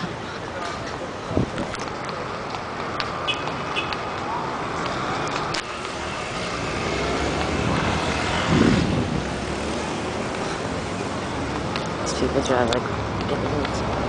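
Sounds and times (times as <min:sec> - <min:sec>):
road traffic: 0:00.0 - 0:14.0
vehicle passing close: 0:04.6 - 0:13.2.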